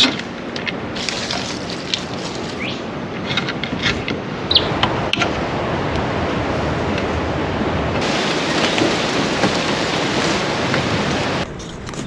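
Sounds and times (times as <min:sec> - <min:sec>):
surf: 0:00.0 - 0:11.4
wind: 0:00.0 - 0:12.0
bird chirps: 0:02.5 - 0:02.9, 0:04.5 - 0:04.7.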